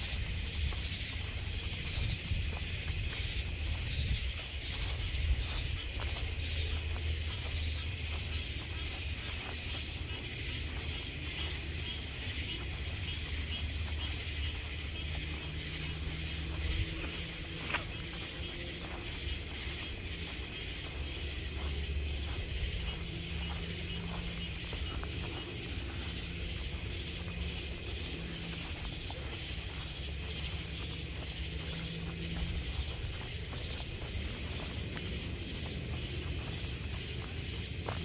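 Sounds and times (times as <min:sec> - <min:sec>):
night insects chirping: 0:00.0 - 0:38.0.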